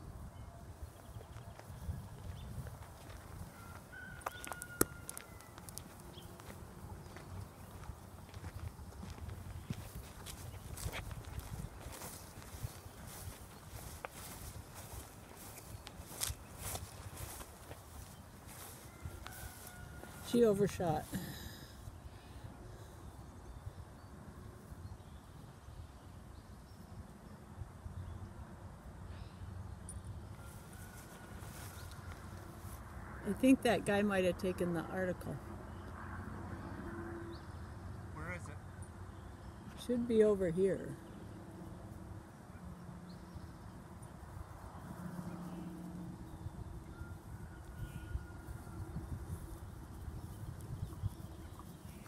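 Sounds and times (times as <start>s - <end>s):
soft rustling: 2.3s - 21.5s.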